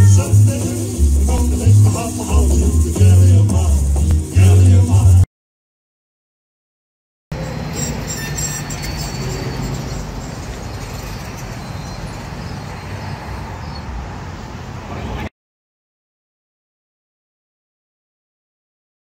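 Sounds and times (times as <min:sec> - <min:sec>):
city street traffic: 0:07.3 - 0:15.3.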